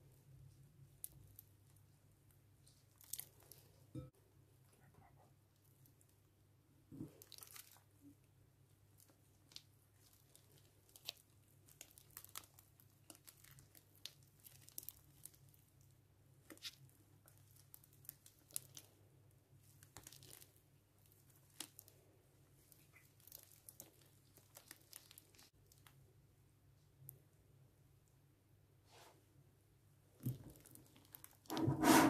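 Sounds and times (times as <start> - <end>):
slime squeezed with sticky crackles: 2.6 - 3.6, 6.9 - 8.1, 9.0 - 19.0, 19.6 - 22.0, 22.6 - 25.9.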